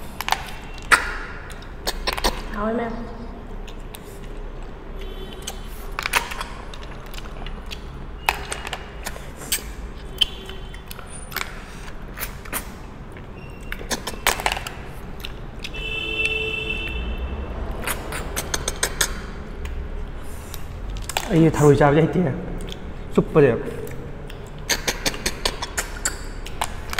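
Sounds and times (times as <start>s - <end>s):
snail shells clicking on plates: 5.4s - 11.7s, 20.5s - 21.5s, 24.3s - 26.9s.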